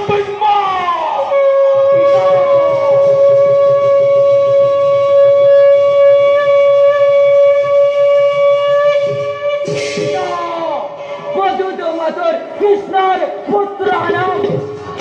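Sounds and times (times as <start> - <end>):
conch shell blown: 1.2 - 10.3.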